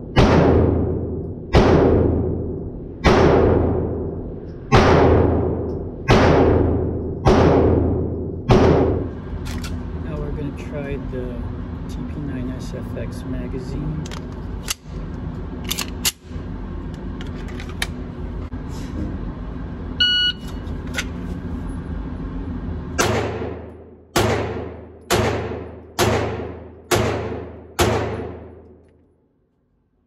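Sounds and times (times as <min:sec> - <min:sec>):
pistol shots ringing indoors: 0:00.0 - 0:09.1, 0:23.0 - 0:29.1
steady low hum: 0:00.0 - 0:30.0
short beep: 0:20.0 - 0:20.6.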